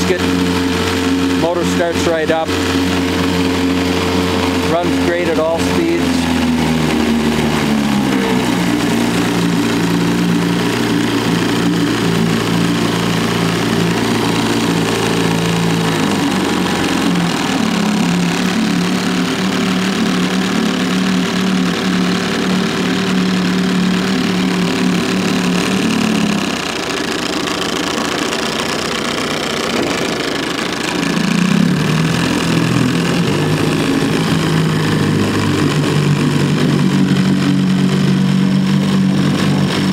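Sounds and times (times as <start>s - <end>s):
outboard motor running: 0.0s - 39.9s.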